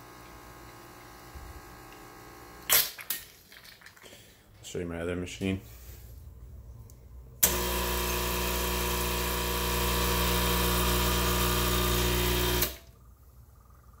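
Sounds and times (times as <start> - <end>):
espresso machine pump buzzing: 0.0 - 2.7, 7.4 - 12.9.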